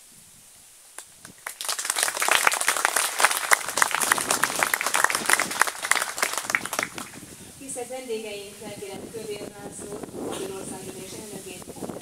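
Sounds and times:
crowd applauding: 1.2s - 7.3s.

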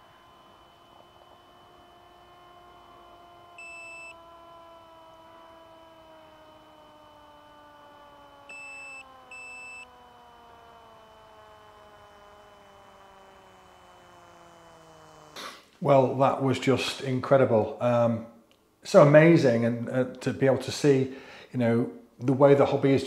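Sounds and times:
faint electric motor of model plane: 0.0s - 15.8s.

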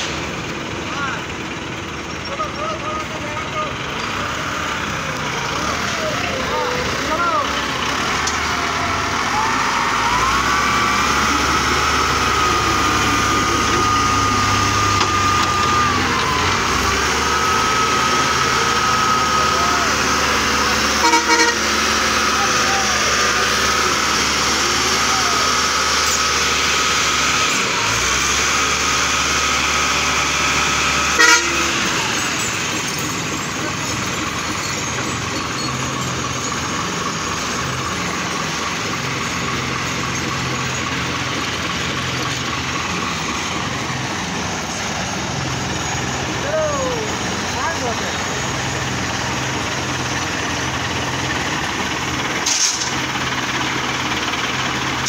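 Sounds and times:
heavy diesel engine running: 0.0s - 55.0s
vehicle horn toot: 20.9s - 21.8s, 31.1s - 31.9s.

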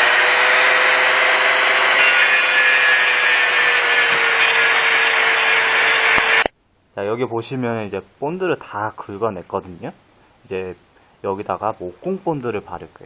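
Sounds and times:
angle grinder grinding wood: 0.0s - 6.5s.

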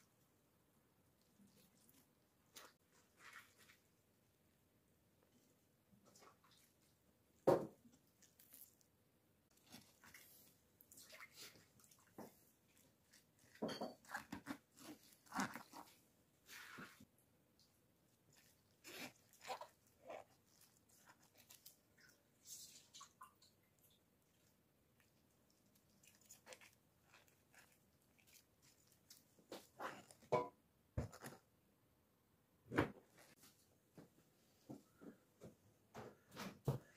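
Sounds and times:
vegetables crunching and squishing: 8.2s - 8.8s, 11.2s - 16.0s, 18.3s - 22.0s, 24.3s - 30.4s.

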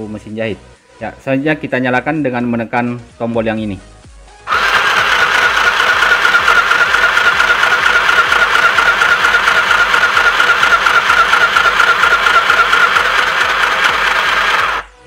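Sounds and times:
sewing machine running: 4.5s - 15.0s.

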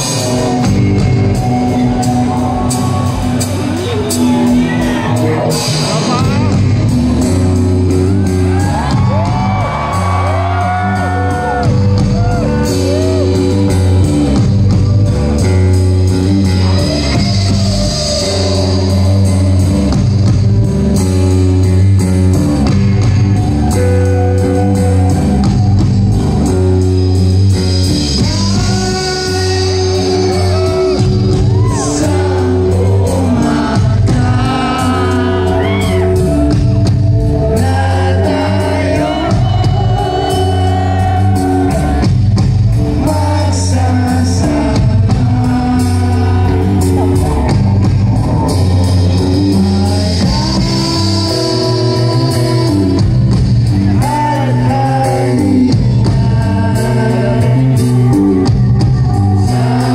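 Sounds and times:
person singing: 0.0s - 20.3s, 27.8s - 59.9s
live rock band playing: 0.0s - 59.9s
crowd shouting: 8.0s - 13.7s, 30.0s - 36.6s, 37.6s - 42.1s.

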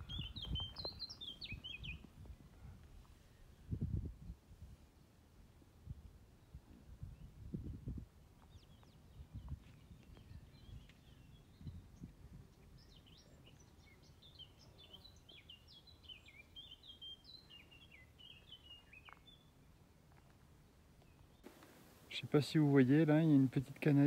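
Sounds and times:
high bird chirps: 0.0s - 2.0s.

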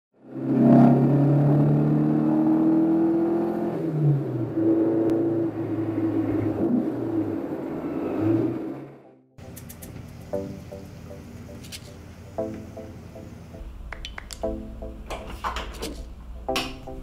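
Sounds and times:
car engine accelerating: 0.2s - 9.2s.

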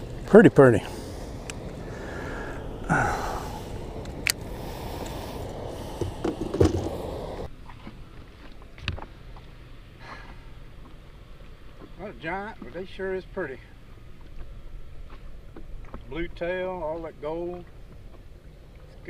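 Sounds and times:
water washing: 0.0s - 8.5s
wind: 0.0s - 19.0s.

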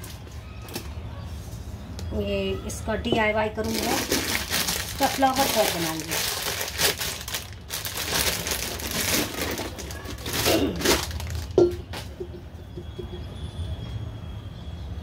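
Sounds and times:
plastic bag crinkling: 3.5s - 11.8s.

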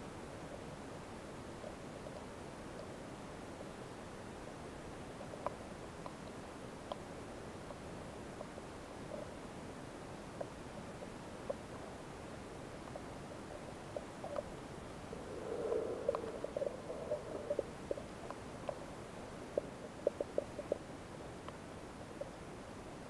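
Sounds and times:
small underwater clicks and pops: 5.1s - 7.8s, 12.8s - 18.9s, 19.5s - 21.6s
muffled underwater hiss: 10.4s - 21.0s
muffled underwater rush: 14.4s - 18.5s.

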